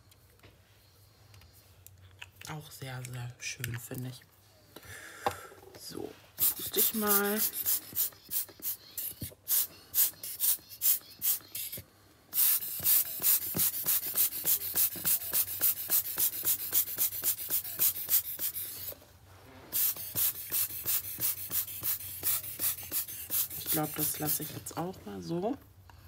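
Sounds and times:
puffs of air blowing: 6.2s - 23.9s.

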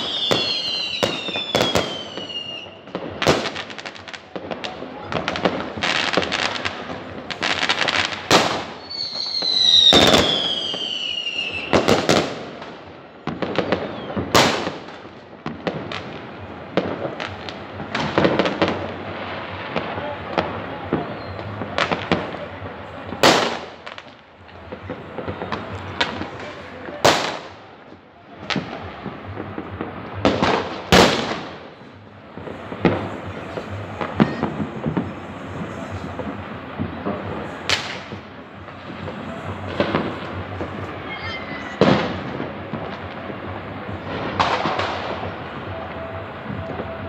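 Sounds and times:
fireworks bangs and crackles: 0.0s - 47.0s
firework whistle falling in pitch: 13.6s - 14.4s, 41.0s - 42.0s.

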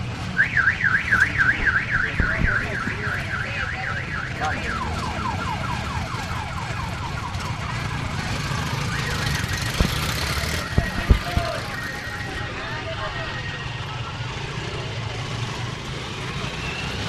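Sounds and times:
electronic siren yelping: 0.4s - 14.7s
motorcycle engines pulling away: 4.3s - 17.0s.

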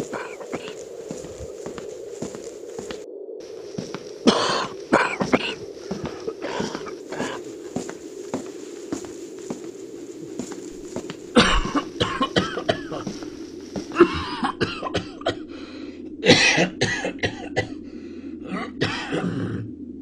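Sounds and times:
man clearing throat: 0.0s - 1.2s, 4.3s - 7.4s, 11.3s - 13.1s, 13.9s - 15.4s, 16.2s - 17.7s, 18.5s - 19.6s
man coughing: 0.0s - 1.3s, 4.3s - 7.4s, 11.3s - 13.2s, 13.9s - 15.5s, 16.2s - 17.7s, 18.6s - 19.6s.

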